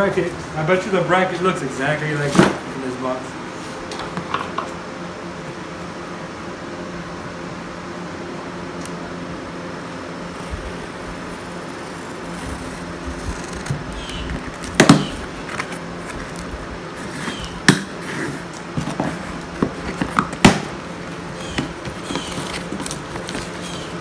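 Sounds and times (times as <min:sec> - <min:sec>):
steady hum: 0:00.0 - 0:24.0
packaging rustling: 0:18.6 - 0:24.0.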